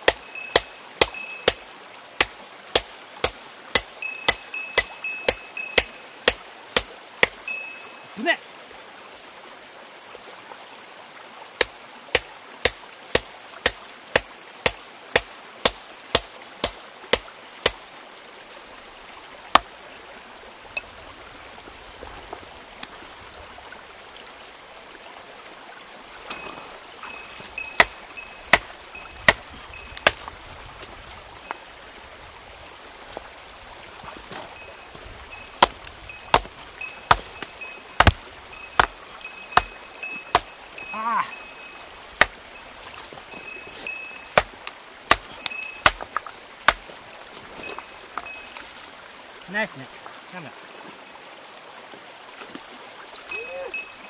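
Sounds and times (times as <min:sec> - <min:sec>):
hammer striking stone: 0:00.0 - 0:01.6, 0:02.2 - 0:07.4, 0:11.6 - 0:17.9, 0:26.3 - 0:28.7, 0:35.6 - 0:40.5, 0:43.8 - 0:46.8
stream running: 0:00.0 - 0:54.0.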